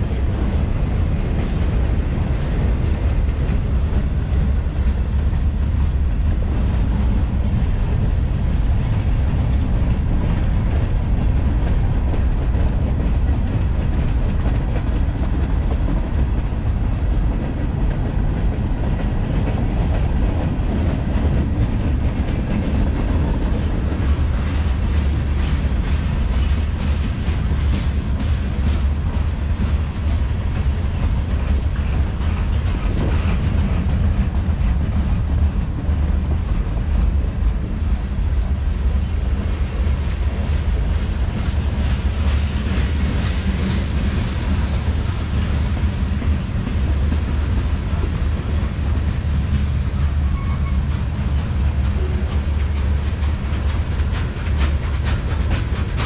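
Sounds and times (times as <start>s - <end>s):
train wheels rumbling on rail: 0.0s - 56.0s
wheels clicking over track: 45.6s - 56.0s.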